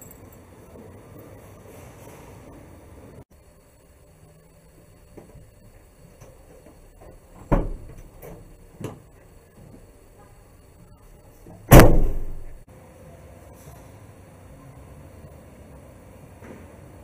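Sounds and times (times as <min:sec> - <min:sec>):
van door latch clunking: 0:07.4 - 0:09.0.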